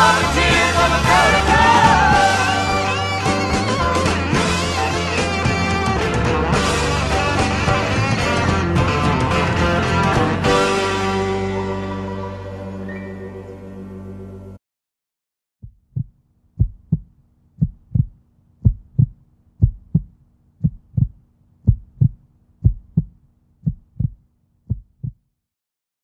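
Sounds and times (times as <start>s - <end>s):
music: 0.0s - 14.6s
heartbeat thumps: 15.6s - 25.2s.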